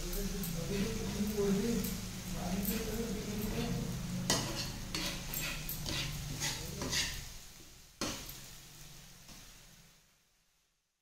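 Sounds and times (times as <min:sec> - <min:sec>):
spoon scraping and stirring paste: 0:02.6 - 0:07.3.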